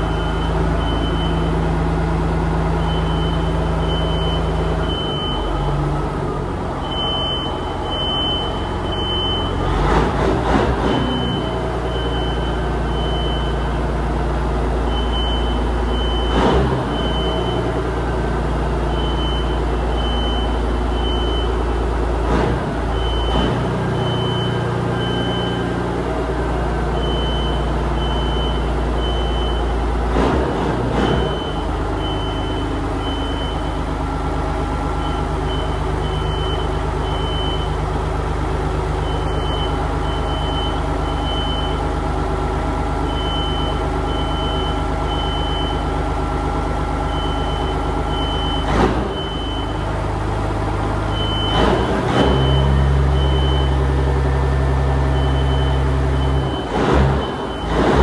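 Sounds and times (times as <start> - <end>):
fire alarm beeping: 0.0 - 1.5, 2.8 - 5.8, 6.8 - 9.6, 18.9 - 21.6, 27.0 - 29.7, 31.2 - 33.8, 35.0 - 37.8, 39.0 - 41.8, 43.1 - 45.9, 47.1 - 49.9, 51.1 - 51.6, 52.4 - 53.8, 55.1 - 57.7
diesel truck engine idling: 0.0 - 58.0.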